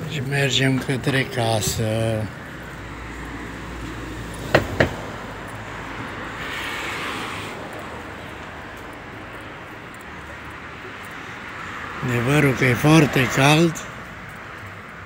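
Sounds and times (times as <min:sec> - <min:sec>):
traffic noise: 0:00.0 - 0:15.0
vehicle passing: 0:00.0 - 0:15.0
sharp knocks: 0:04.5 - 0:05.1.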